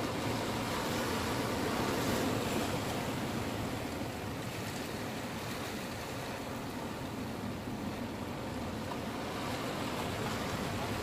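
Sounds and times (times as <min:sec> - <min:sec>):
surf washing over rocks: 0:00.0 - 0:11.0.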